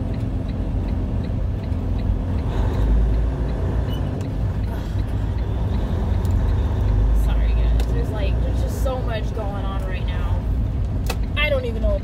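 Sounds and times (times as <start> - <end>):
faint regular ticking: 0.0 - 12.0
road noise: 0.0 - 12.0
truck diesel engine rumble: 0.0 - 12.0.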